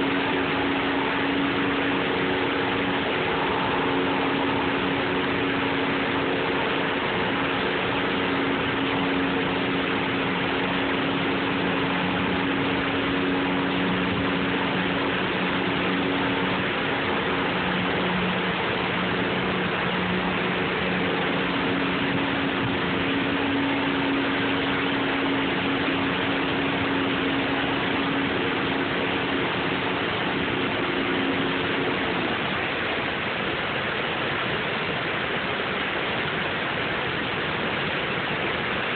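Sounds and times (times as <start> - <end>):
engine hum: 0.0 - 38.9
water pouring over dam: 0.0 - 38.9.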